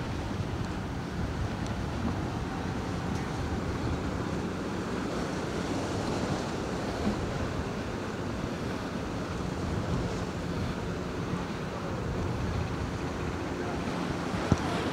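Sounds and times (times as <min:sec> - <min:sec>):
sea washing against jetty: 0:00.0 - 0:14.9
wind buffeting microphone: 0:00.0 - 0:14.9.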